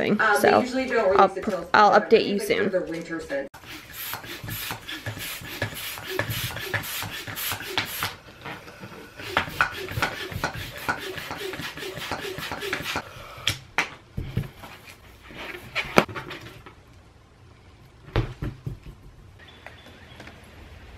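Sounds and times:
hand pump puffing and clicking: 0:03.7 - 0:08.2, 0:09.2 - 0:13.0.

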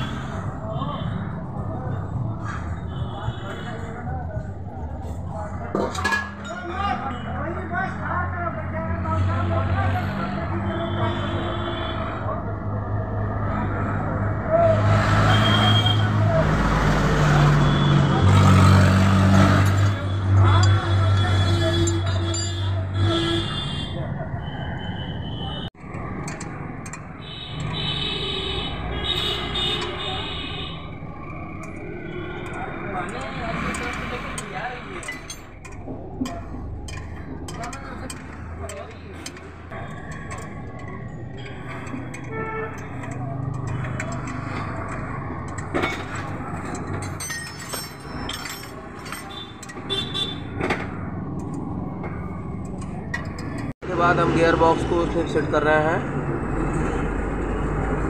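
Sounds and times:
workshop and street background noise: 0:00.0 - 0:58.0
wrench clinking against bolts: 0:21.7 - 0:22.8, 0:31.2 - 0:50.4.

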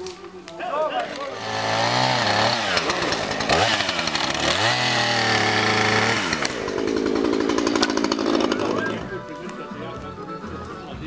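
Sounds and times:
chainsaw revving: 0:01.0 - 0:09.3.

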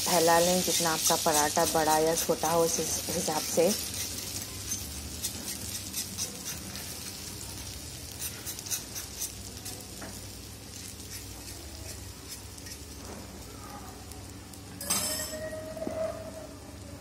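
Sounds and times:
egg sizzling in hot oil: 0:00.0 - 0:14.6
spoon scraping: 0:00.2 - 0:07.2, 0:08.2 - 0:09.8, 0:10.7 - 0:12.9.

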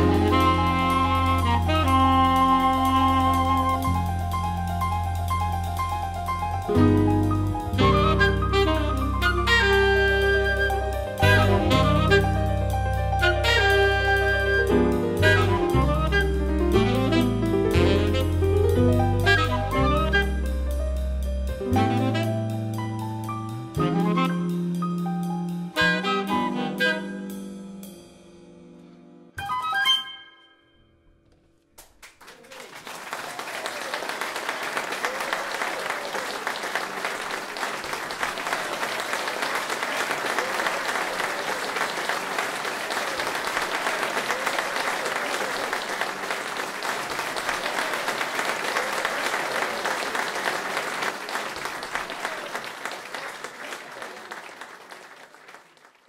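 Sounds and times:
saxophone band chord: 0:00.0 - 0:27.9
audience applause: 0:31.8 - 0:56.0.

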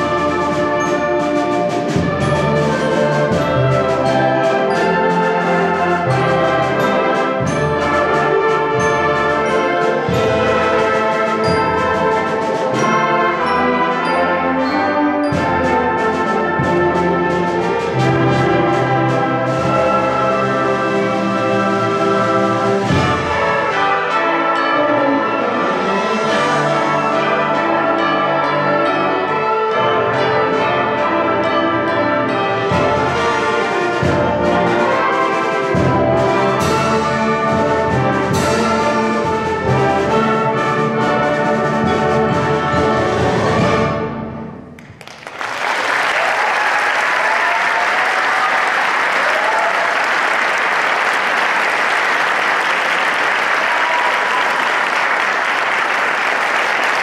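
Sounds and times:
concert band playing: 0:00.0 - 0:57.0
audience applause: 0:44.8 - 0:57.0.

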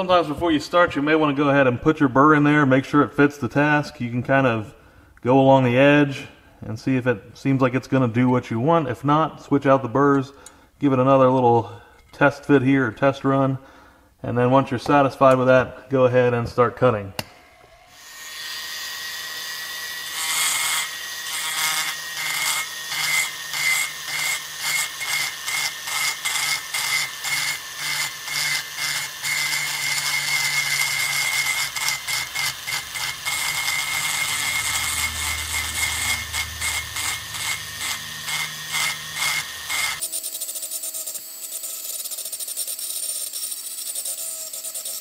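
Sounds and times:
rotary tool grinding metal: 0:17.4 - 0:45.0.

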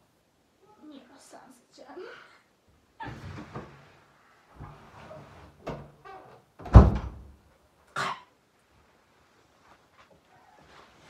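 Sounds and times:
shuffling and handling noises: 0:08.6 - 0:11.0
short rustle: 0:08.7 - 0:11.0.

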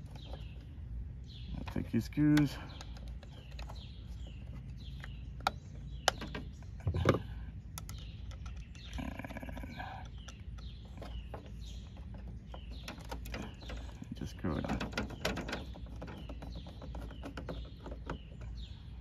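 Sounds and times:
small birds chirping: 0:00.0 - 0:19.0
sharp plastic clicks: 0:04.6 - 0:09.0.

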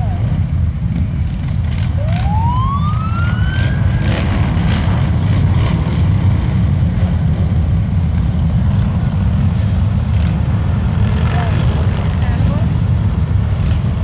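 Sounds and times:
motorcycle engines rumbling: 0:00.0 - 0:14.0
siren sweeping up: 0:02.0 - 0:04.4.

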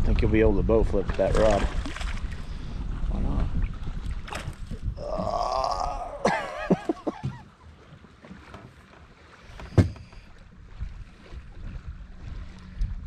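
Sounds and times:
man's wavering vocal sound: 0:05.0 - 0:06.6
man laughing: 0:05.9 - 0:07.6.

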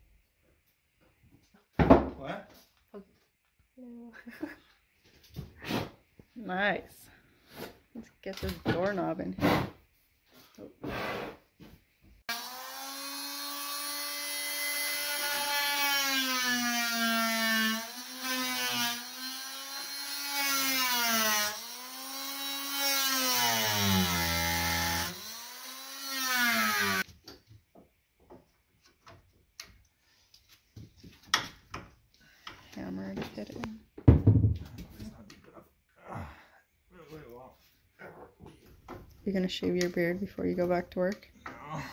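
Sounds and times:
multi-tool cutting wood: 0:08.6 - 0:09.8, 0:12.3 - 0:27.1.

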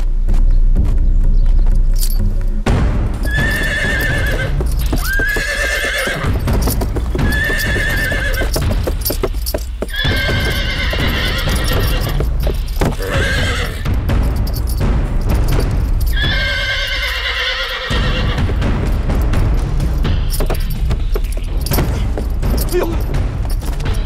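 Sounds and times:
hooves stamping and clattering: 0:00.0 - 0:24.0
horse whinnying: 0:03.2 - 0:14.0, 0:16.0 - 0:18.6, 0:20.3 - 0:22.0.

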